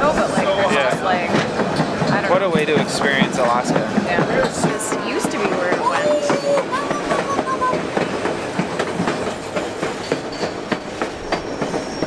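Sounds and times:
train wheels clacking on rails: 0.0 - 12.0
thin wheel squeals: 11.3 - 12.0.

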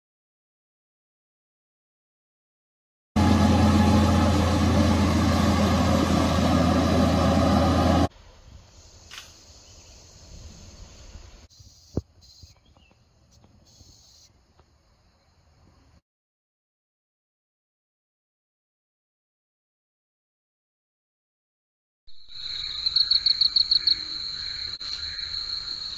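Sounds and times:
insects buzzing in grass: 8.7 - 14.4.

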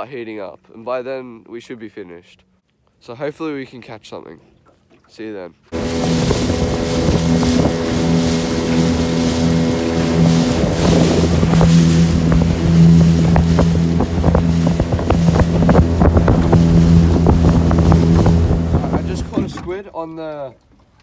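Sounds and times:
hull slapping against waves: 5.7 - 19.8
motorboat engine running: 5.7 - 19.8
wind noise on microphone: 5.8 - 19.7.

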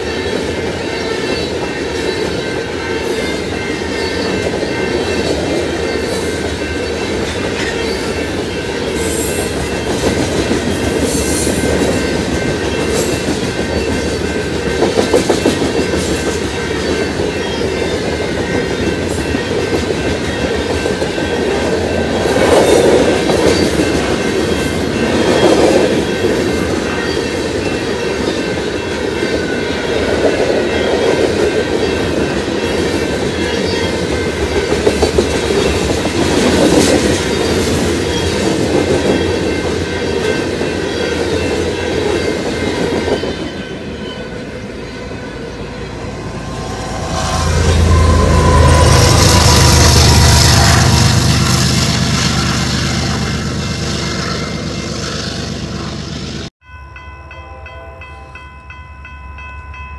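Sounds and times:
train wheels clacking on rails: 0.0 - 43.8.

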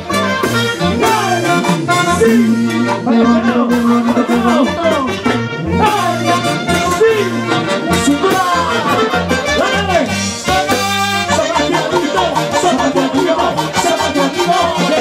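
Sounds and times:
latin dance music: 0.0 - 15.0.

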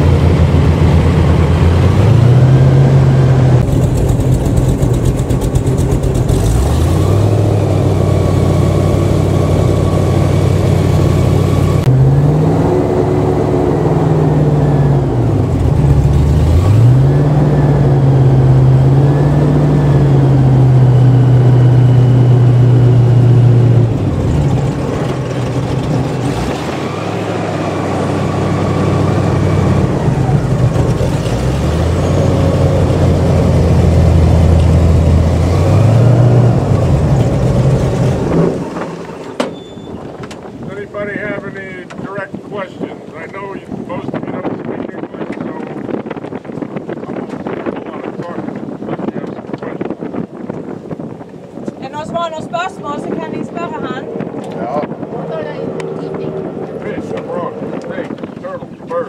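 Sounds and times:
airboat engine revving: 0.0 - 59.0.

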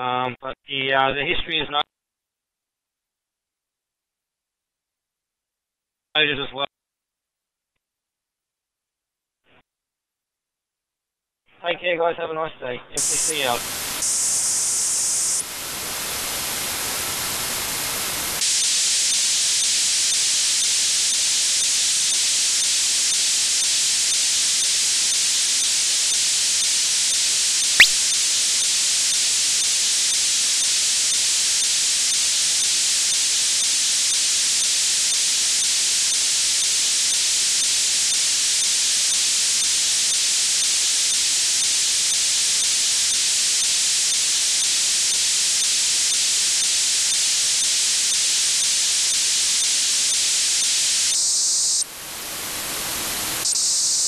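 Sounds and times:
radio static hiss: 13.0 - 17.2
sharp click: 27.8 - 28.0.

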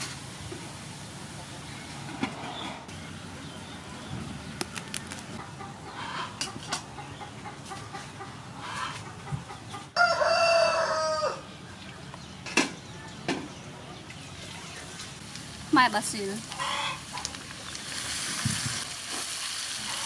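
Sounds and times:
chicken clucking: 5.4 - 10.5
rooster crowing: 10.0 - 11.5.

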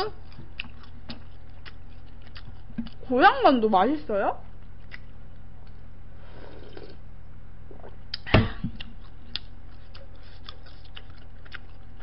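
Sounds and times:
low electrical hum: 0.0 - 12.0
chewing mouth clicks: 0.1 - 3.1, 4.6 - 5.8, 8.8 - 12.0.

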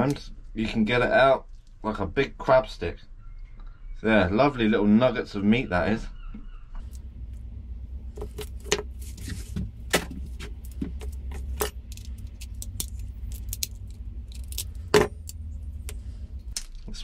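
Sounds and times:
steady low hum: 0.0 - 17.0
crab shell cracking: 9.9 - 16.9.

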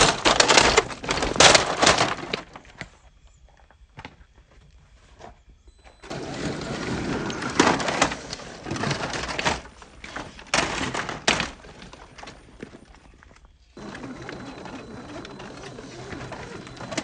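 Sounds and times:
plastic body knocking on rocks: 0.0 - 2.6.

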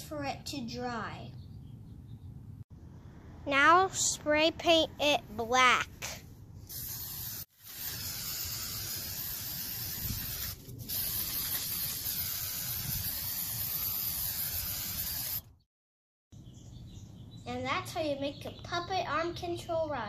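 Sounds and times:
spray paint can hissing: 6.7 - 15.5.

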